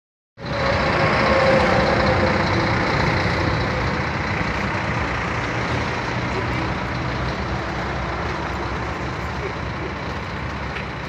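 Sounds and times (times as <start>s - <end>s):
large vehicle engine running: 0.4s - 11.0s.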